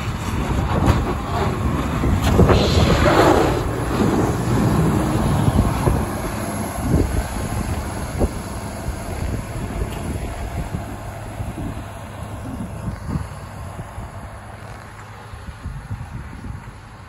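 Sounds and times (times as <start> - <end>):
diesel engine running: 0.0 - 17.0
blade scraping snow: 0.1 - 6.7.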